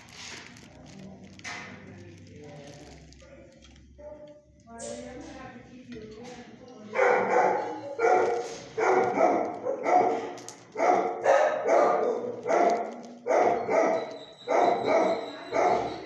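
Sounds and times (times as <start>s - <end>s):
dog barking: 6.9s - 16.0s.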